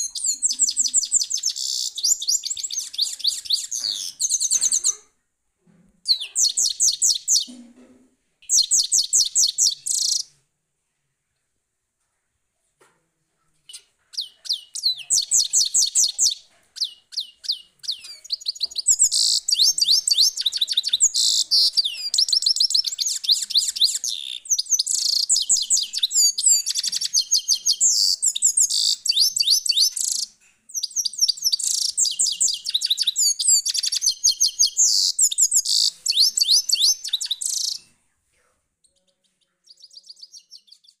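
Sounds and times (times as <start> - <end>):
bird twittering: 0.0 - 5.0, 8.4 - 10.3, 13.7 - 37.9.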